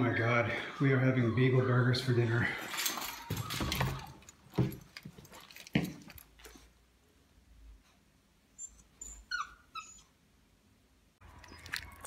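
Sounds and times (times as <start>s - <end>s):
puppy whimpering: 8.6s - 10.2s.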